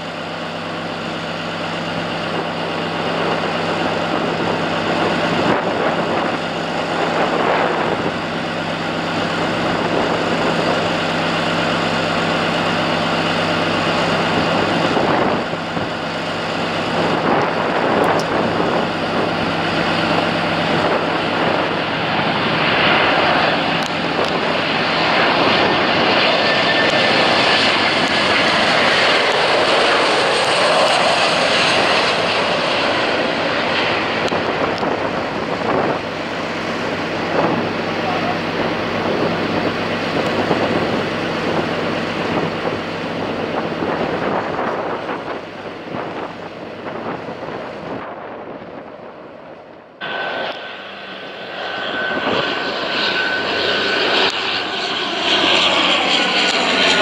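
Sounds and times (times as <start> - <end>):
jet engine rushing: 0.0 - 57.0
low hum: 43.9 - 57.0.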